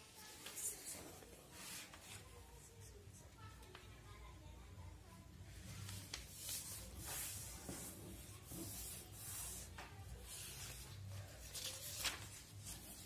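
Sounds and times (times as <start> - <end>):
paper crackles: 5.7 - 13.0
paper rustling: 5.7 - 13.0.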